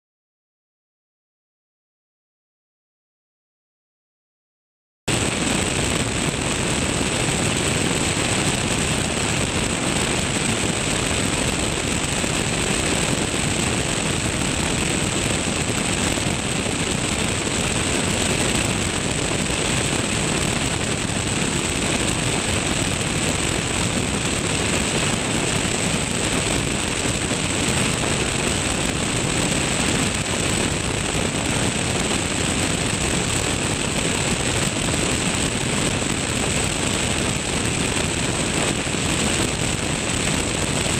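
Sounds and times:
light aircraft engine drone: 5.1s - 40.9s.

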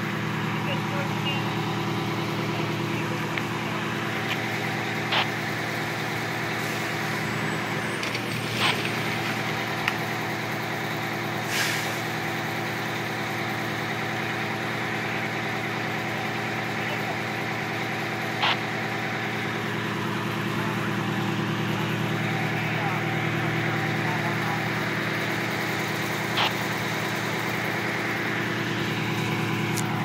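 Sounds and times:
fire engine idling: 0.0s - 30.0s
short sharp clicks: 26.4s - 26.6s.

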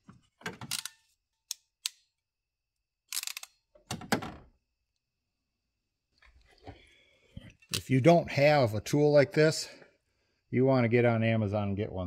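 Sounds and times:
ratcheting crimper clicks: 3.1s - 3.6s.

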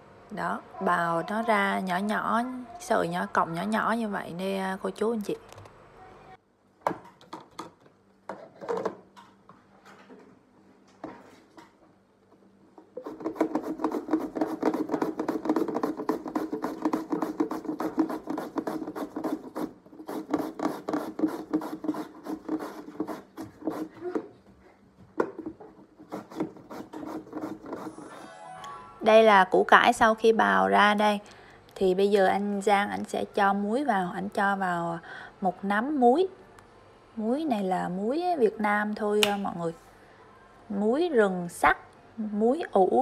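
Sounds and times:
radish grating on a grater: 13.0s - 24.1s, 26.0s - 28.0s.

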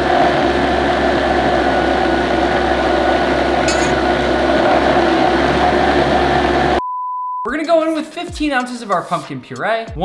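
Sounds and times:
blender motor running: 0.0s - 6.8s.

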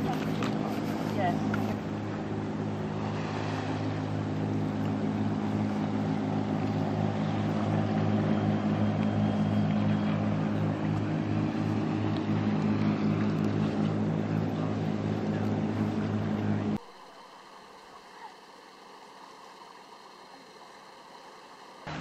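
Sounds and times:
motor engine droning: 0.0s - 16.9s.

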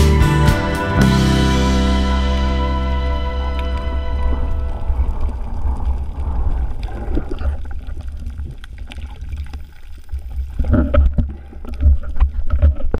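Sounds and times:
background music: 0.0s - 5.2s
underwater water rushing: 0.6s - 12.9s.

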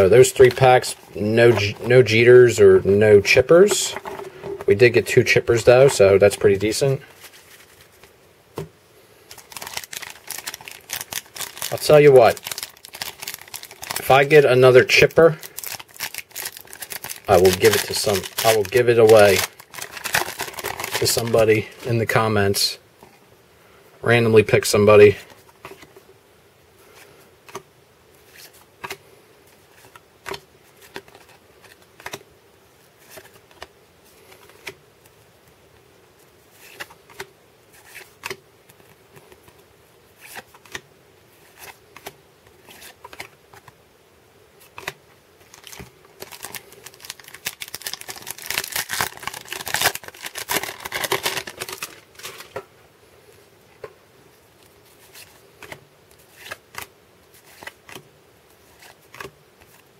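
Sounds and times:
cards and packaging rustling: 0.0s - 8.2s, 9.3s - 22.7s, 29.7s - 32.2s, 33.0s - 34.8s, 36.5s - 39.6s, 41.4s - 43.8s, 44.6s - 52.6s, 54.6s - 59.9s.

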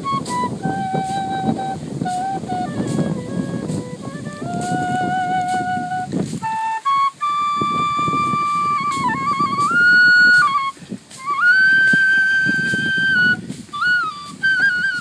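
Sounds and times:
bamboo flute melody: 0.0s - 15.0s.

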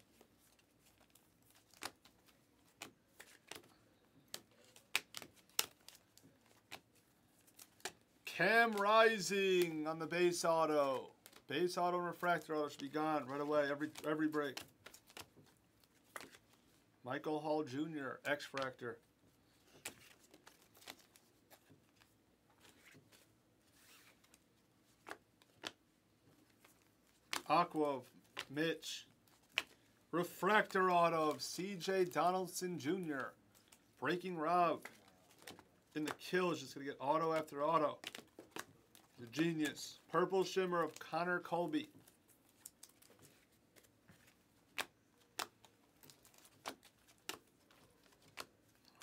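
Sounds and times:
trading cards clicking and sliding: 0.1s - 16.6s, 29.4s - 49.0s.

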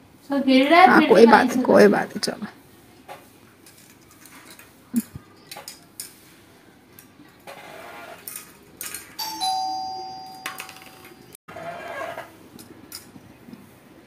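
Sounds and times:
two-note chime: 9.2s - 11.1s.

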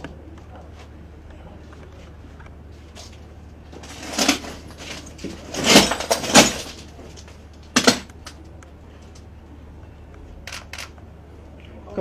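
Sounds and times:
camera shutters firing: 10.5s - 11.0s.

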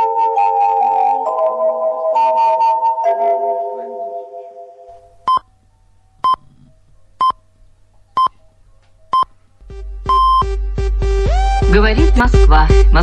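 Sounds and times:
low music beat: 9.6s - 13.0s
high radio time beeps: 10.1s - 10.4s.

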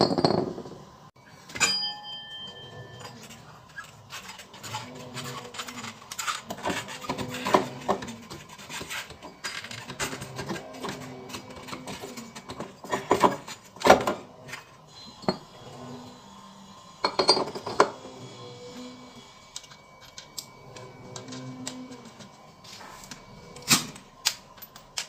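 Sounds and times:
metal parts clinking and knocking: 23.1s - 25.0s.

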